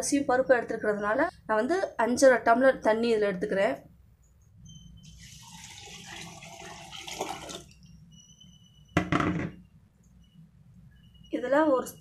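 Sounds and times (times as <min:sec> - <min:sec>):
water pouring and splashing: 0:05.1 - 0:07.8.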